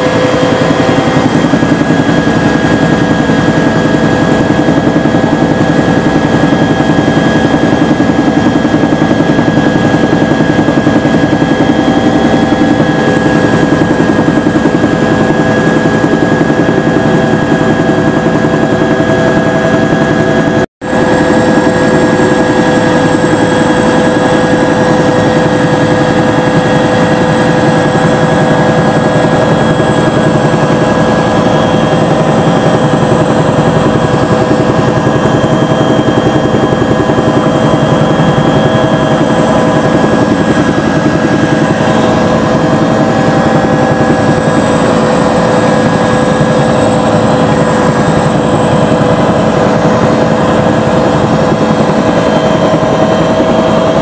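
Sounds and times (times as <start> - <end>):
helicopter rotor: 0.0 - 54.0
high turbine whine: 0.0 - 54.0.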